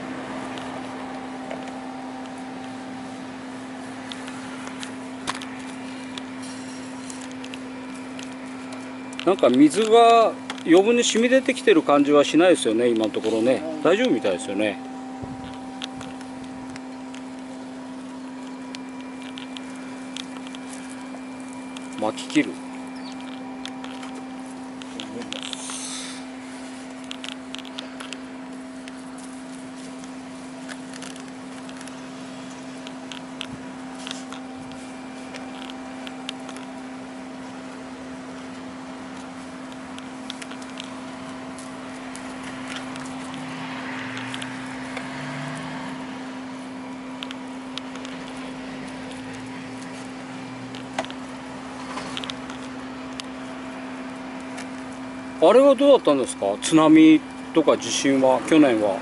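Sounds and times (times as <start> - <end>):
steady electrical hum: 0.0 - 59.0
tape rustling: 0.4 - 45.1.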